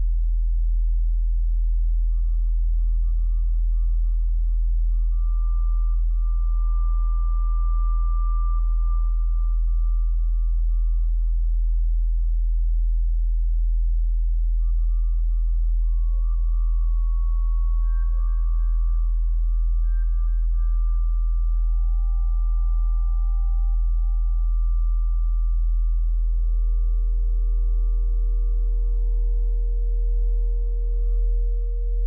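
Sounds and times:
deep electronic hum: 0.0s - 32.0s
thin sustained electronic tones: 1.8s - 32.0s.

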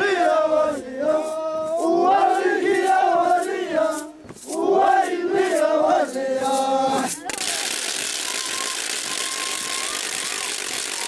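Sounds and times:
group of voices chanting: 0.0s - 7.4s
loud steady hiss: 7.2s - 11.0s.

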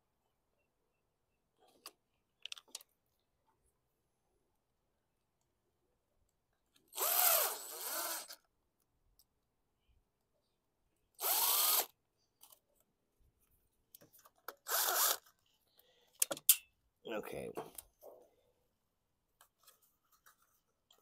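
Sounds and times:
cordless drill motor whine: 6.9s - 8.4s, 11.2s - 12.0s, 14.7s - 15.2s.

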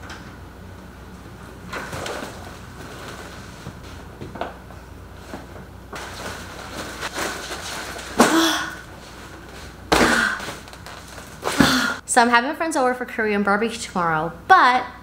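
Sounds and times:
fabric bags rustling: 6.0s - 12.0s.

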